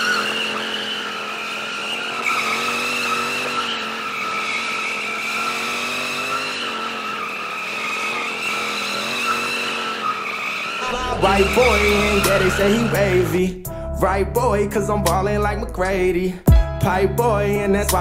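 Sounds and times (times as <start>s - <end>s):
tyres squealing on pavement: 0.0s - 13.5s
motorcycle engine revving high: 0.0s - 13.6s.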